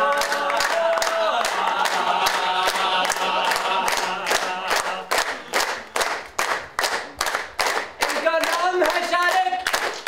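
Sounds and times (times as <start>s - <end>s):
men singing in unison: 0.0s - 5.2s
rhythmic hand clapping: 0.0s - 10.0s.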